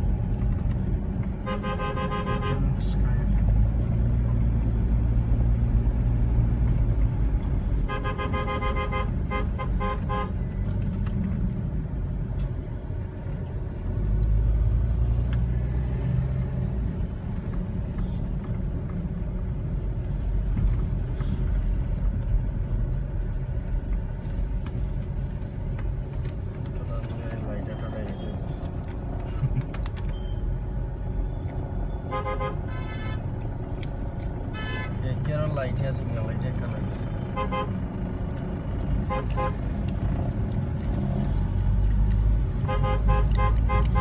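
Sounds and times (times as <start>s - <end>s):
car driving heard from inside: 0.0s - 44.0s
vehicle horn honking: 1.4s - 2.7s, 7.9s - 10.4s, 32.0s - 33.3s, 34.5s - 35.0s, 37.3s - 37.7s, 39.0s - 39.6s, 42.6s - 44.0s.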